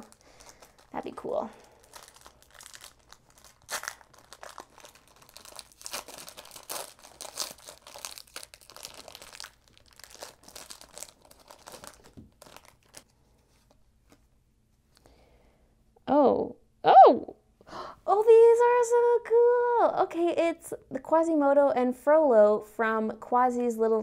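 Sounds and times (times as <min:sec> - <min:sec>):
foil wrapper tearing and crinkling: 0:00.0 - 0:13.1.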